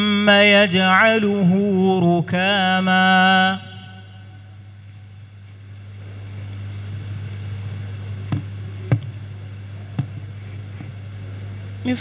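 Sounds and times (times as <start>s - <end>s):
low electrical hum: 0.0s - 12.0s
sharp knocks: 10.0s - 10.3s.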